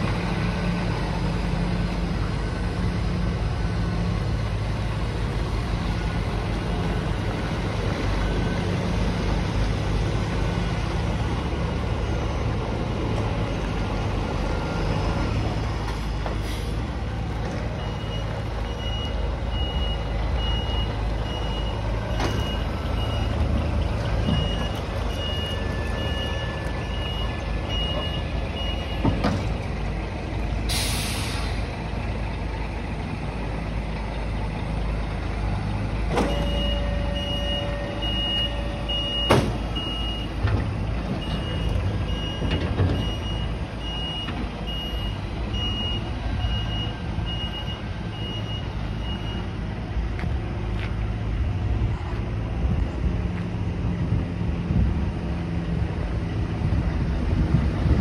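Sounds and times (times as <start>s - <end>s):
diesel truck engine running: 0.0s - 58.0s
air brake hiss: 16.4s - 16.8s, 30.7s - 31.7s
reversing alarm beeps: 17.8s - 23.5s, 24.2s - 29.1s, 36.2s - 40.4s, 41.2s - 49.6s.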